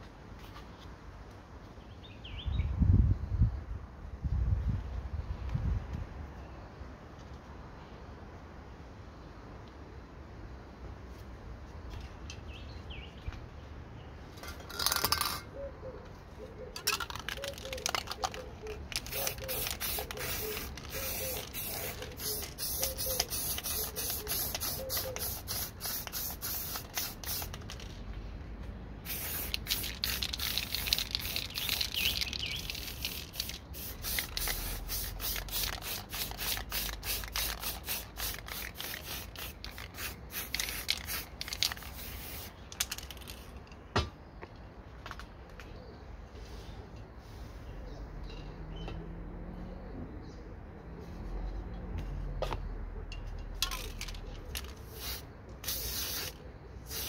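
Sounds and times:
spray paint can hissing: 0:17.0 - 0:27.9, 0:29.0 - 0:43.5, 0:53.6 - 0:57.0.

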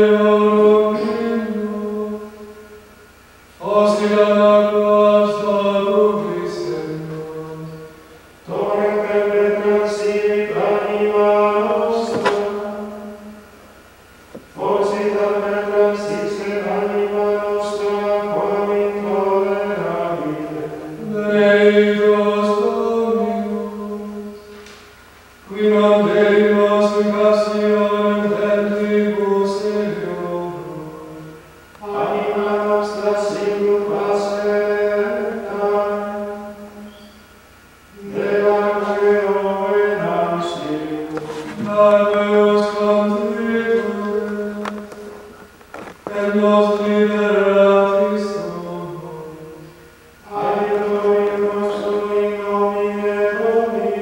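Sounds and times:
monks chanting plainchant: 0:25.5 - 0:37.2, 0:37.9 - 0:54.0.

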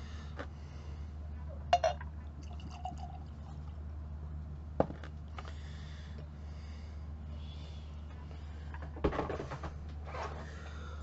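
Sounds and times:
glass clink: 0:01.7 - 0:02.0
liquid pouring into glass: 0:01.8 - 0:03.7.

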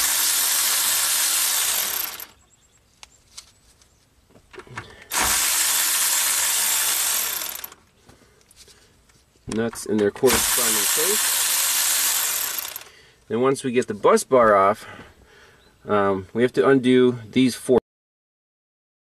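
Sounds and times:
power driver spinning nuts: 0:00.0 - 0:02.5, 0:04.6 - 0:07.9, 0:09.6 - 0:12.9.

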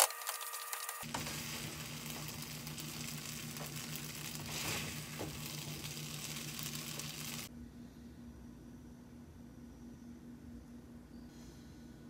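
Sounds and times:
noodles sizzling in a frying pan: 0:00.2 - 0:07.5
wooden spoon stirring: 0:01.0 - 0:07.5
steady low hum: 0:01.0 - 0:12.0.

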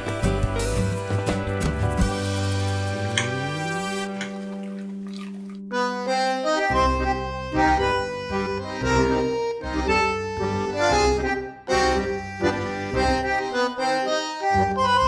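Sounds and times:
tango music with bandoneon: 0:05.7 - 0:15.0.

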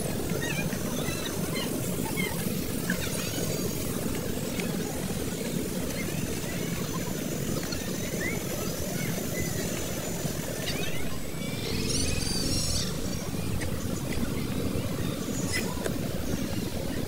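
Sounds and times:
birds chirping: 0:00.1 - 0:17.0
low wind rumble: 0:08.8 - 0:17.0.

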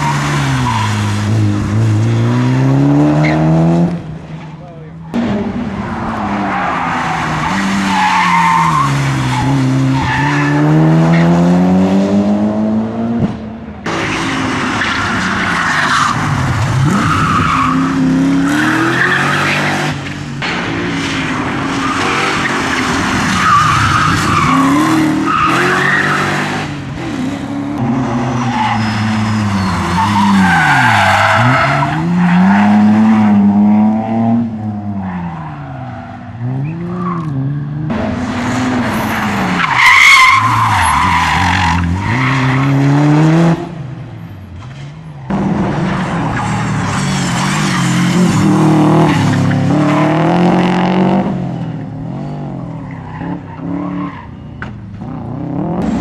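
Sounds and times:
rally car engines revving: 0:00.0 - 0:56.0
tyres squealing on tarmac: 0:21.8 - 0:26.4, 0:28.1 - 0:32.9, 0:38.5 - 0:42.8.

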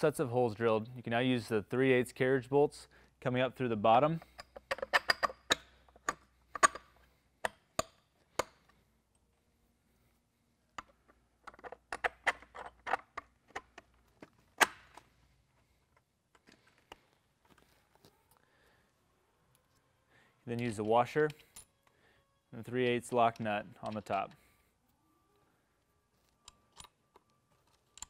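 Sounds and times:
clicks and knocks of bolts: 0:04.2 - 0:08.8.

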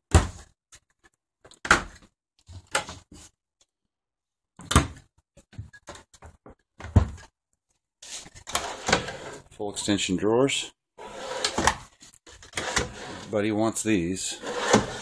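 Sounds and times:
cabinet doors opening and shutting: 0:04.6 - 0:05.0, 0:06.8 - 0:07.3, 0:08.4 - 0:10.0, 0:11.0 - 0:13.3, 0:14.4 - 0:15.0.

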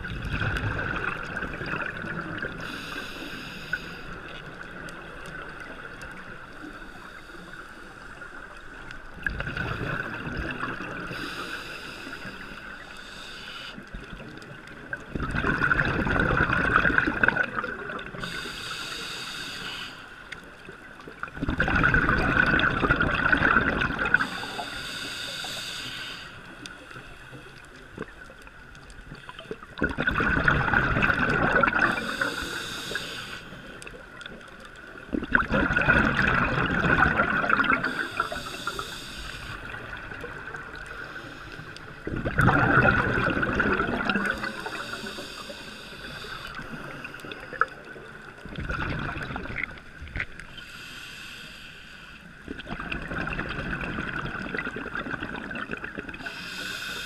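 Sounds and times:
bubbling exhalations underwater: 0:00.0 - 0:02.6, 0:09.2 - 0:11.1, 0:15.1 - 0:18.2, 0:21.2 - 0:24.2, 0:29.8 - 0:32.2, 0:35.1 - 0:38.3, 0:42.0 - 0:44.8, 0:48.4 - 0:50.2, 0:52.5 - 0:56.2
regulator hiss: 0:02.6 - 0:04.2, 0:11.1 - 0:13.9, 0:18.2 - 0:20.3, 0:24.2 - 0:27.6, 0:31.9 - 0:33.8, 0:37.8 - 0:39.8, 0:44.4 - 0:47.4, 0:50.5 - 0:52.4, 0:56.2 - 0:57.0.

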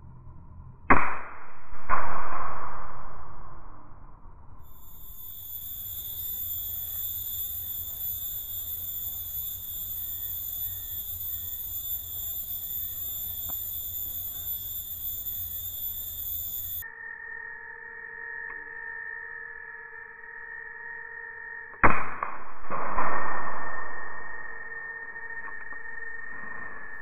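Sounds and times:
low rumble: 0:00.0 - 0:06.2, 0:22.3 - 0:24.8
low-pitched steady buzz: 0:00.0 - 0:27.0
insects droning: 0:04.5 - 0:21.8, 0:23.4 - 0:27.0.

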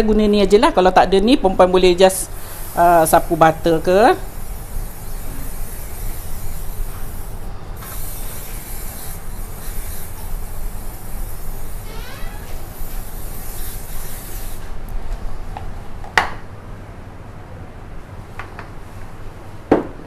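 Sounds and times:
aerosol spray hissing: 0:02.2 - 0:14.8.

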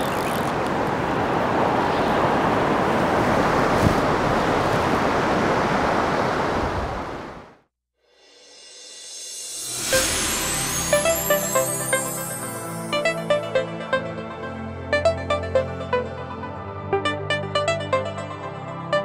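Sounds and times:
flowing river water: 0:00.0 - 0:07.5.

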